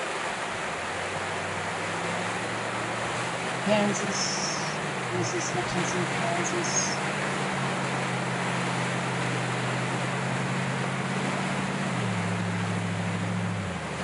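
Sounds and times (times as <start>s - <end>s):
floodwater rushing: 0.0s - 14.0s.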